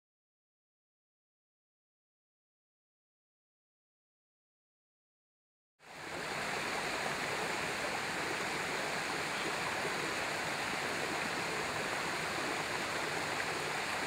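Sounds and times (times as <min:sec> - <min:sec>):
water rushing through dam outlet: 0:05.8 - 0:14.0.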